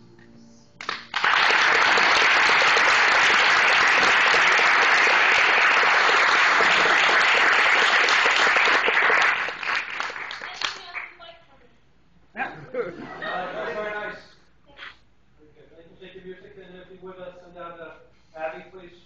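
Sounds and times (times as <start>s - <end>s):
audience applauding: 0.8s - 11.2s.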